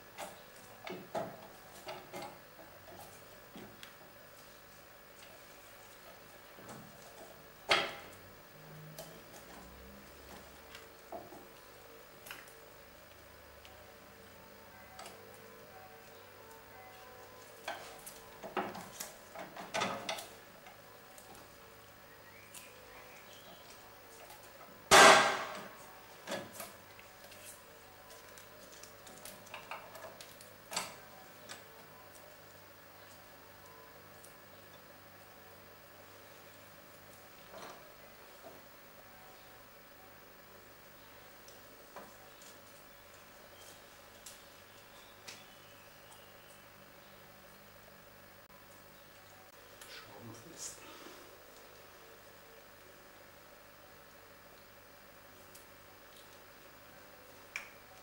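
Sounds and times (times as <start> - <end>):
faint steady hum: 0.0 - 58.0
loud sharp metal knock: 24.9 - 25.6.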